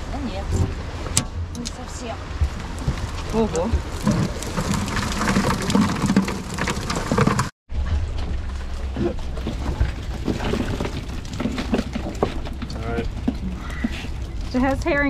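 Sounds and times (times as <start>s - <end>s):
water streaming and dripping: 0.1s - 7.6s
fish flapping patter: 2.5s - 7.5s.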